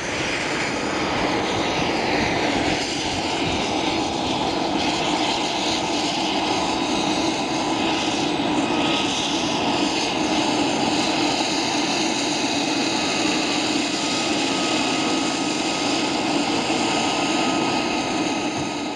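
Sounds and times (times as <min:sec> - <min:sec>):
helicopter engines and rotors: 0:00.0 - 0:18.9.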